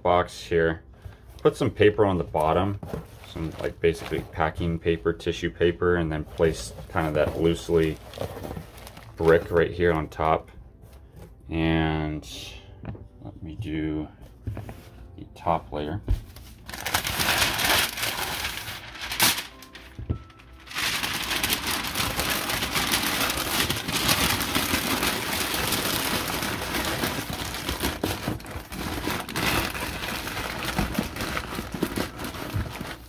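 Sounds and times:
packing paper crumpling: 0:06.2 - 0:10.0, 0:16.3 - 0:33.0.

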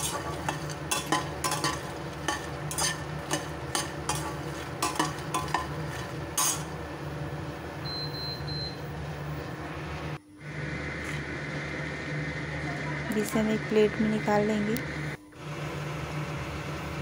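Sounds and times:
seeds rattling against metal: 0:00.0 - 0:06.7
spatula scraping metal pan: 0:00.0 - 0:06.8
steady low hum: 0:00.0 - 0:17.0.

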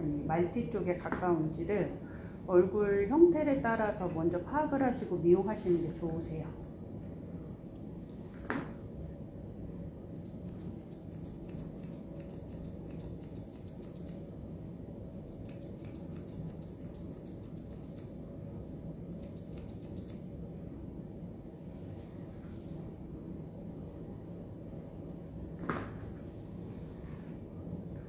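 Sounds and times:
steady low hum: 0:00.0 - 0:28.0
thinning shears snipping fur: 0:10.1 - 0:14.4, 0:15.1 - 0:18.1, 0:19.2 - 0:20.2.

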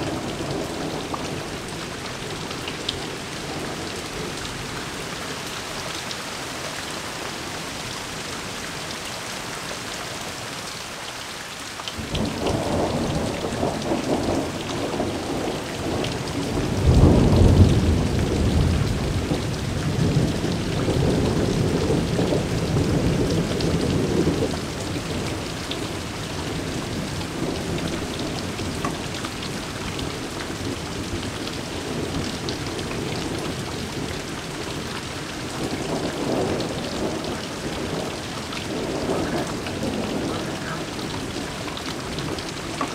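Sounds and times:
heavy rain pouring: 0:00.0 - 0:42.9
thunder rumbling: 0:12.0 - 0:42.9.

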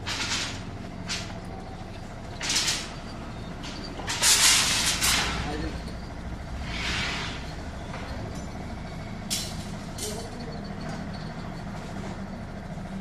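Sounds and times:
rebar scraping on dirt: 0:00.0 - 0:08.8
metallic clanks: 0:00.0 - 0:12.4
steady low hum: 0:00.0 - 0:13.0.

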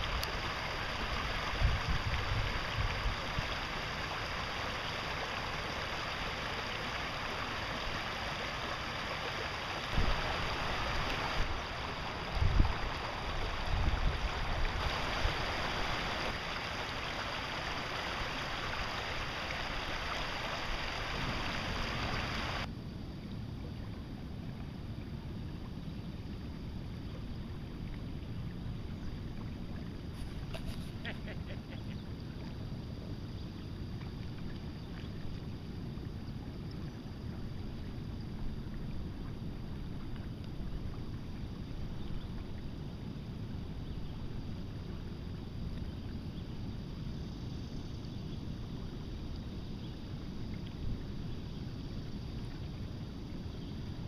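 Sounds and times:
river rushing over rocks: 0:00.0 - 0:22.7.

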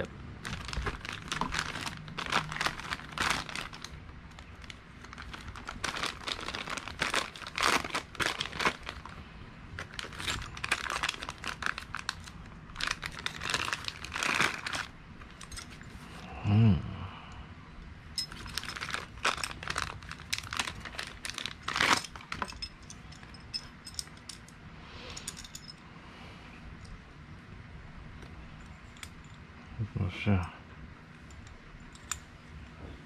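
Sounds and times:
plastic bags crinkling: 0:00.4 - 0:15.8, 0:18.2 - 0:24.0.

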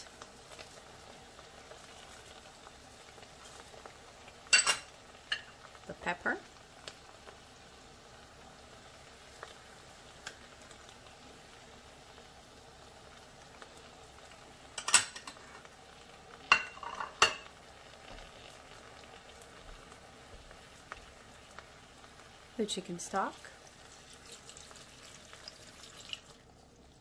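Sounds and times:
glass bowl clinking: 0:04.5 - 0:05.5, 0:14.8 - 0:15.4, 0:16.5 - 0:17.5.

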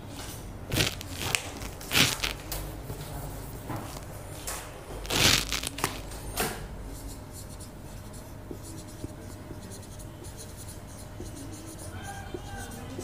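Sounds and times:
rustling: 0:00.7 - 0:02.5, 0:05.0 - 0:06.0
marker pen writing on whiteboard: 0:05.0 - 0:13.0.

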